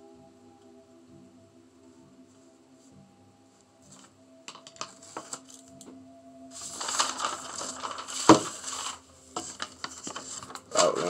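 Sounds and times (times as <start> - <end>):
paper rustling: 3.9 - 5.9, 6.5 - 11.0.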